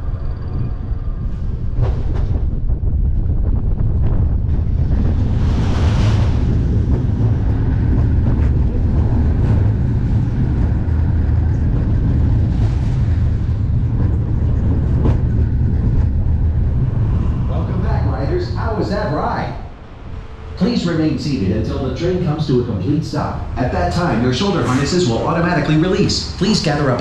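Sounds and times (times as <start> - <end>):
roller coaster rumbling on steel track: 0.0 - 27.0
wind noise on microphone: 0.0 - 27.0
rush of air: 1.8 - 21.7.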